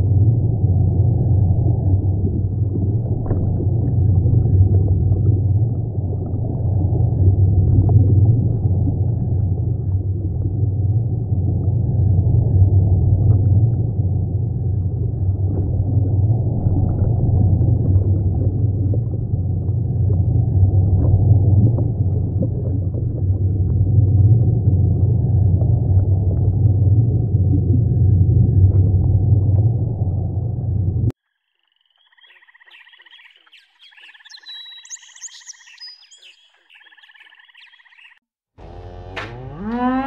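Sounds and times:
underwater rumble of moving water: 0:00.0 - 0:31.1.

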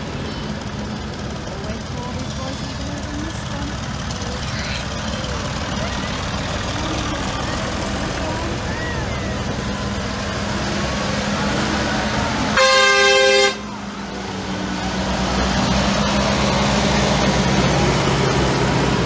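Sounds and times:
tractor engines running: 0:00.0 - 0:19.0
vehicle horn blast: 0:12.5 - 0:13.7.

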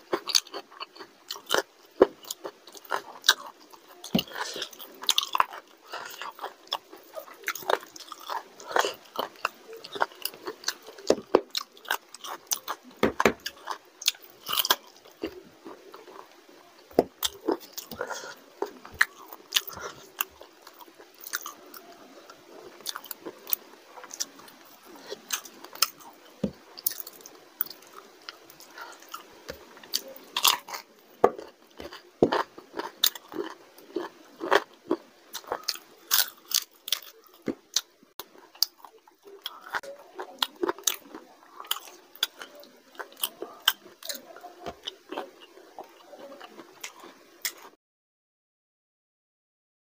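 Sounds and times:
food crunching: 0:00.0 - 0:47.8
man chewing food: 0:00.0 - 0:47.8.

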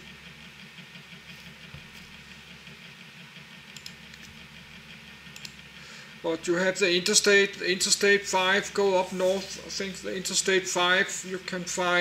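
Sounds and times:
faint clicks: 0:03.7 - 0:04.3, 0:05.3 - 0:05.6.

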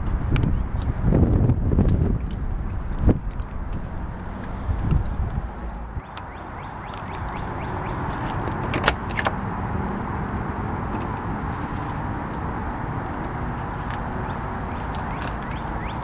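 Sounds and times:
steady low rumble: 0:00.0 - 0:16.0
car door latch clicks: 0:08.2 - 0:09.4.

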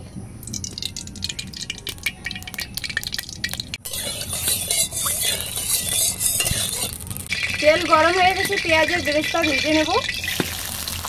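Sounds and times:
hot oil sizzling: 0:00.4 - 0:11.0
oil pouring with crackles: 0:00.4 - 0:11.0
spatula scraping pan: 0:03.8 - 0:11.0.

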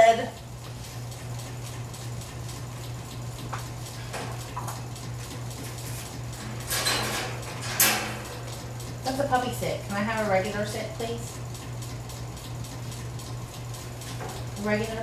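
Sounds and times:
wire crate clinking and rattling: 0:06.5 - 0:08.5.

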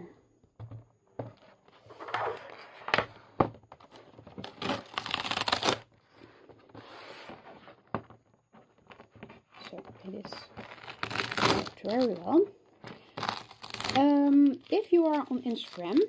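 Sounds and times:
tape ripping: 0:04.4 - 0:05.9, 0:09.5 - 0:16.0.

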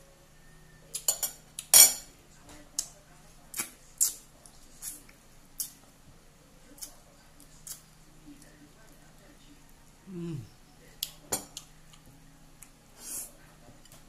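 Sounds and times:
spoon clinking on ceramic plates: 0:01.0 - 0:02.1.

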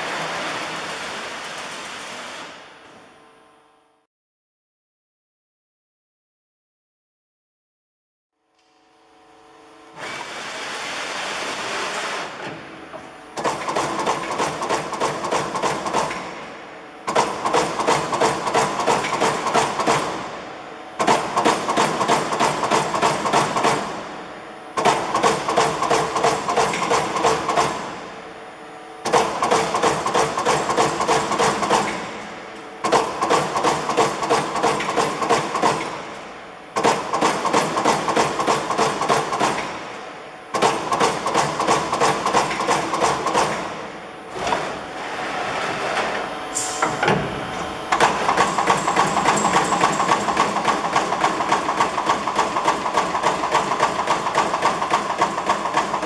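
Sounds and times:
machine running: 0:00.0 - 0:03.1, 0:29.0 - 0:56.0
punch press punching sheet metal: 0:17.1 - 0:20.3, 0:21.0 - 0:24.0, 0:24.8 - 0:28.0, 0:29.0 - 0:32.2, 0:32.8 - 0:36.1, 0:36.8 - 0:44.8, 0:46.1 - 0:56.0.

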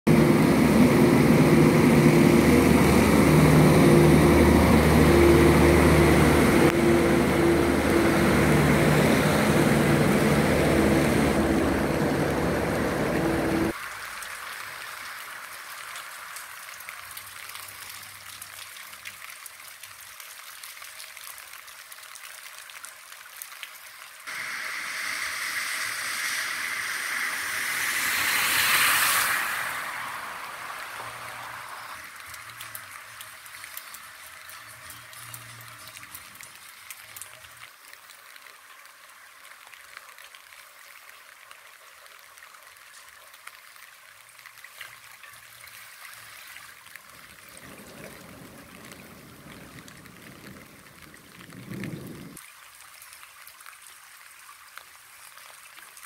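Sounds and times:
diesel tractor engine running: 0:00.1 - 0:13.7
car tyres splashing through water: 0:00.1 - 0:21.0, 0:24.2 - 0:38.1, 0:43.5 - 0:53.2
hiss of rain: 0:00.1 - 0:56.0
rain water washing on street: 0:00.1 - 0:56.0.

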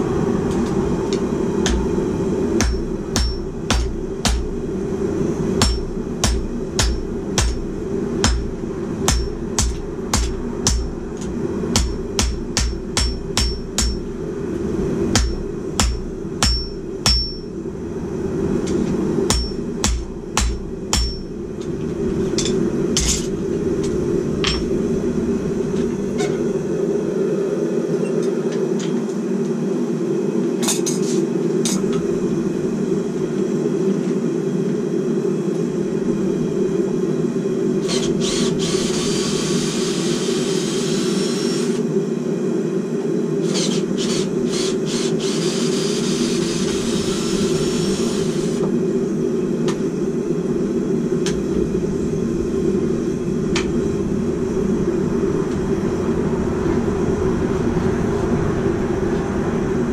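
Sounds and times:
steady low drone: 0:00.0 - 0:59.9
hammer striking steel anvil: 0:02.6 - 0:04.5, 0:05.6 - 0:10.9, 0:11.7 - 0:14.1, 0:15.1 - 0:17.5, 0:19.3 - 0:21.3, 0:24.4 - 0:24.8.

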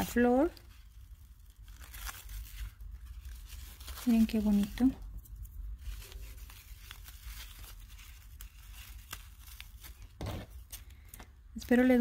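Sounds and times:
ribbon rustling: 0:00.0 - 0:12.0.

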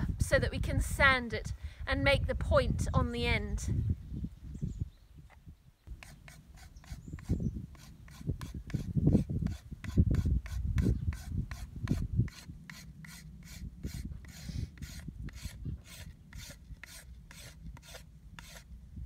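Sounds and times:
knife scraping bark off stick: 0:05.9 - 0:18.7.

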